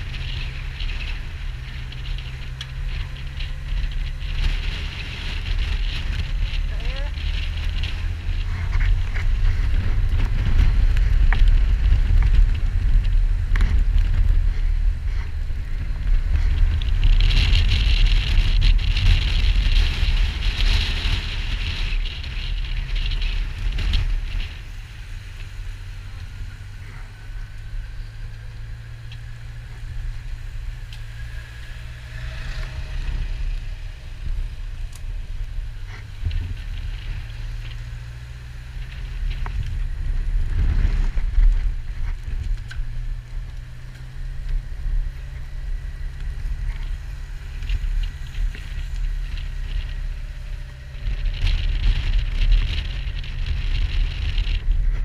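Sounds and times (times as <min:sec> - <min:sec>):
motorcycle engine running: 0:00.0 - 0:55.0
wind rumble on microphone: 0:00.0 - 0:55.0.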